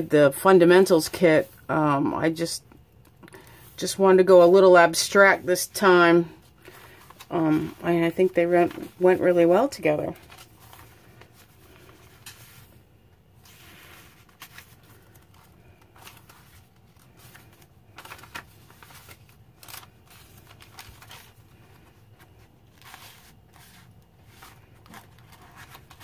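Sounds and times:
low steady hum: 0:00.0 - 0:26.0
paper pages rustling: 0:06.4 - 0:26.0.

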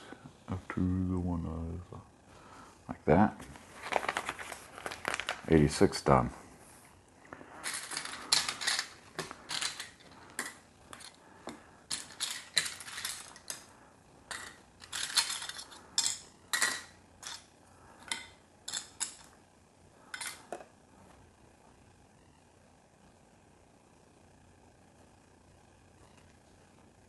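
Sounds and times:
plastic bricks clattering: 0:07.6 - 0:11.2, 0:11.9 - 0:13.7, 0:14.3 - 0:17.5.

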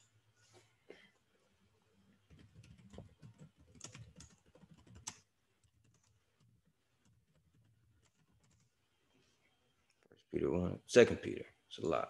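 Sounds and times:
computer keyboard typing: 0:02.3 - 0:08.7.

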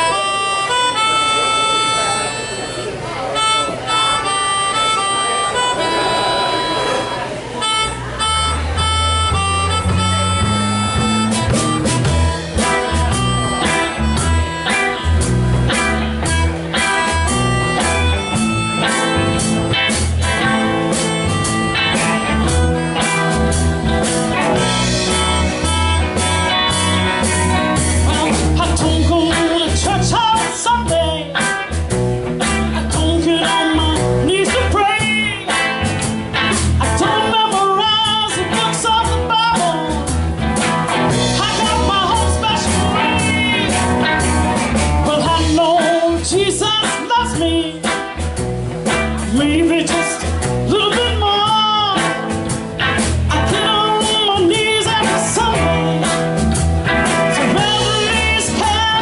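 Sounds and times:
amplified overdriven harmonica: 0:00.0 - 0:31.8, 0:40.8 - 0:46.2, 0:53.5 - 0:59.0
blues-rock band playing: 0:00.0 - 0:59.0.

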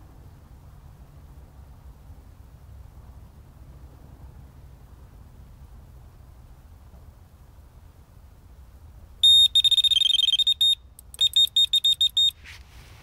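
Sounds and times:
electronic bite alarm beeping: 0:09.2 - 0:12.3.

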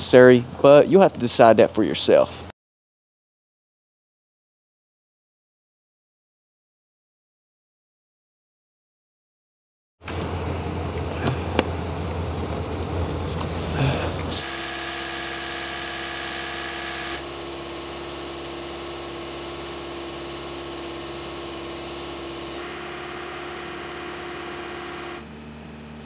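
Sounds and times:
car engine idling: 0:10.1 - 0:26.0.

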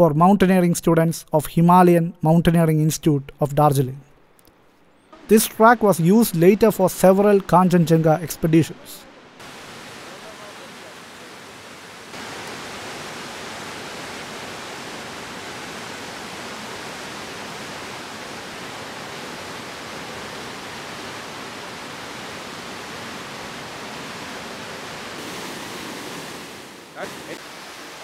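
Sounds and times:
water rushing over boulders: 0:05.2 - 0:28.0.

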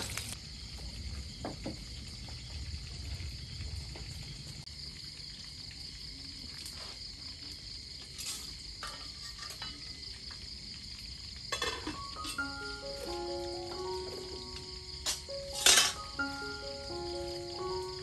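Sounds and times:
night insects chorus: 0:00.0 - 0:18.0
kitchen utensils and pots clattering: 0:08.2 - 0:10.0, 0:11.5 - 0:13.1, 0:15.0 - 0:16.2.

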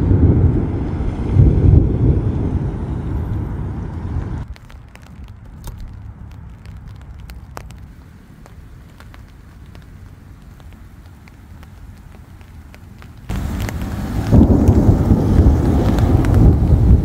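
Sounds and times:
loud low rumble: 0:00.0 - 0:04.5, 0:13.3 - 0:17.0
light rain: 0:00.0 - 0:17.0
raindrops ticking close by: 0:03.2 - 0:17.0.

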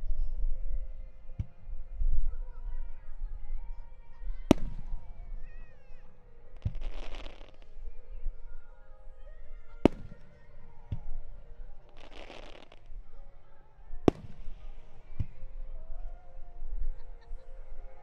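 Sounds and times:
music: 0:00.0 - 0:18.0
fireworks crackling: 0:06.6 - 0:08.0, 0:09.8 - 0:13.2, 0:14.0 - 0:15.4.

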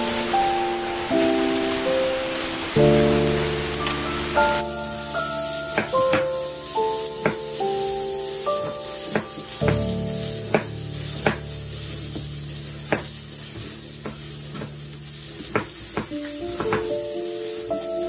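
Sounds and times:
soft background music: 0:00.0 - 0:18.0.

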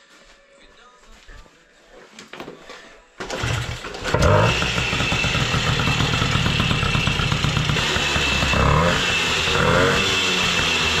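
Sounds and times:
moped engine revving: 0:03.2 - 0:11.0.

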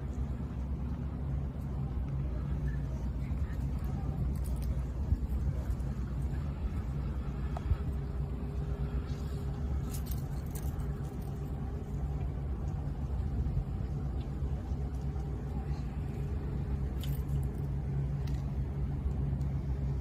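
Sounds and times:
faint steady hum: 0:00.0 - 0:20.0
low street rumble: 0:00.0 - 0:20.0.

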